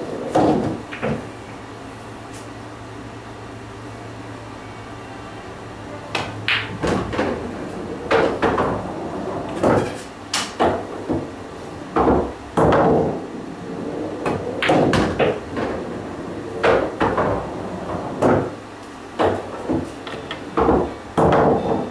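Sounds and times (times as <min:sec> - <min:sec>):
pool balls clacking: 0:00.0 - 0:01.3, 0:06.1 - 0:21.9.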